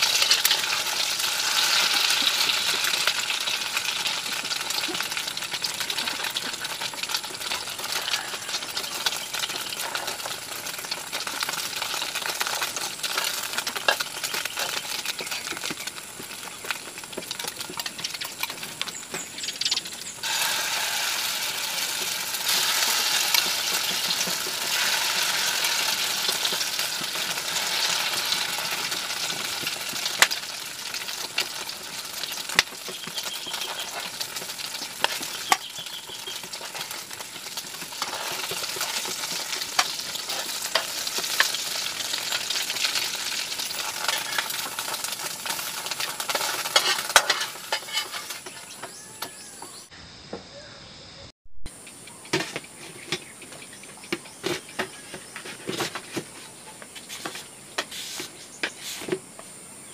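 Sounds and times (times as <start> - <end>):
food sizzling in oil: 0.0 - 49.9
utensil scraping pan: 31.0 - 41.7, 43.6 - 49.8, 54.4 - 59.2.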